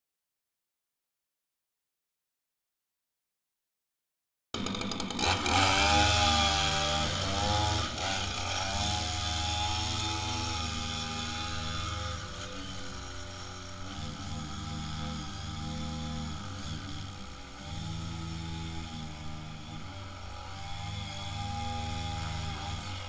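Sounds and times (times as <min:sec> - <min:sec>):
string trimmer engine running: 0:04.6 - 0:23.0.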